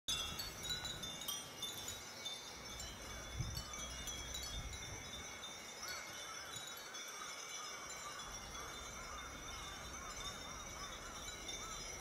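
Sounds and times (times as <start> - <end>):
wind bells tinkling: 0.1 - 12.0.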